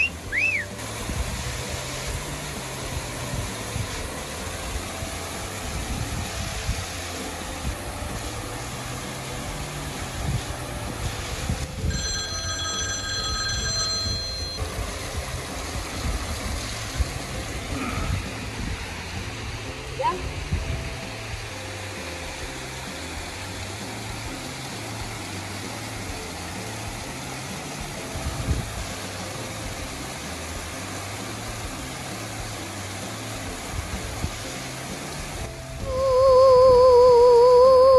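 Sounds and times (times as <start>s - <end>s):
waterfall pouring into pool: 0.0s - 37.9s
high bell-like tones: 11.8s - 14.8s.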